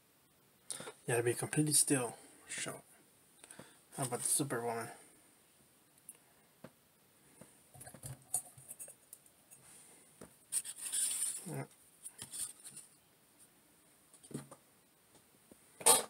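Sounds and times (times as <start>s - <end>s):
scraping rustle: 10.5s - 13.0s.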